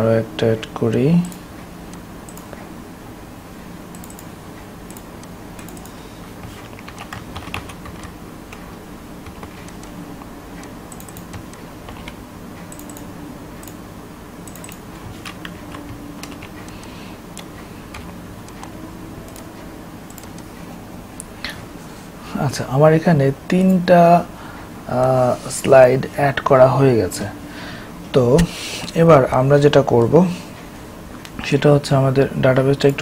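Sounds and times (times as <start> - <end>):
low steady hum: 0.0 - 33.0
keyboard keys clicking: 3.9 - 4.3, 4.9 - 10.0, 10.6 - 13.8, 14.4 - 20.5.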